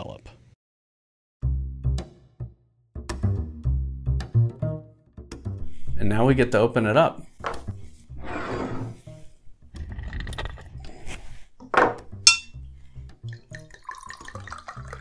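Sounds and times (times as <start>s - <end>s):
glass clink: 12.2s - 12.6s
liquid pouring into glass: 13.2s - 15.0s.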